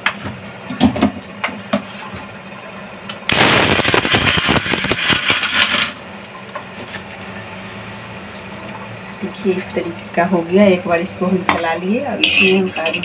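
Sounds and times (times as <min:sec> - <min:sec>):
mixer grinder grinding nuts: 0:03.4 - 0:06.0.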